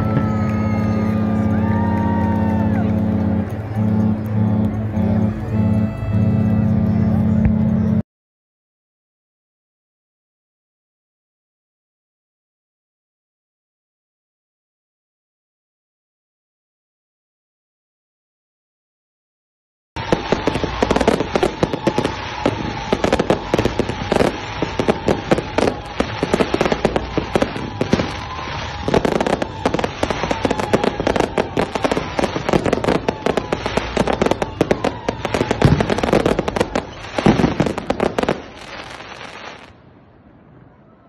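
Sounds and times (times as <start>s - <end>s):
fireworks crackling and popping: 0.0s - 7.9s, 20.0s - 39.8s.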